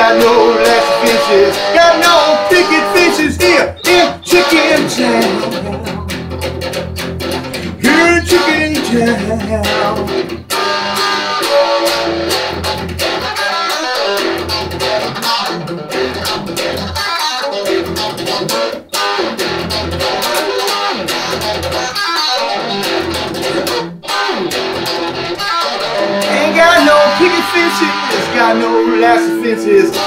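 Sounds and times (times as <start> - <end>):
electric guitar playing: 0.0 - 30.0.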